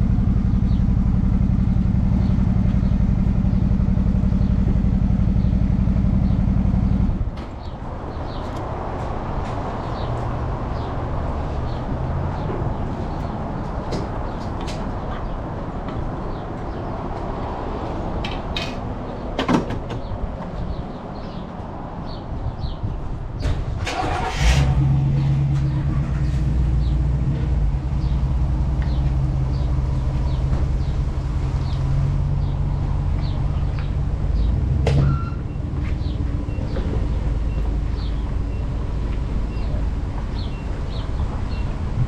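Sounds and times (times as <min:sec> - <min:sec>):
motorcycle engine starting and idling: 0:23.4 - 0:27.5
engine burst: 0:23.8 - 0:25.4.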